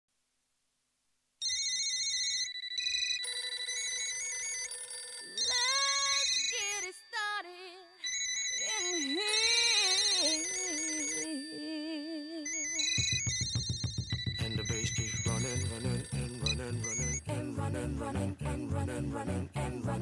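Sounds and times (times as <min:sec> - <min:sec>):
electronic telephone ringer warbling: 0:01.4 - 0:17.3.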